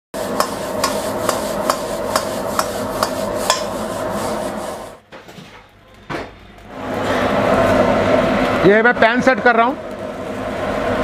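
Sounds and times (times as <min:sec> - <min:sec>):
gas flame rushing: 0:00.2 - 0:05.0, 0:06.7 - 0:09.0
metal utensil scraping wok: 0:00.2 - 0:05.0.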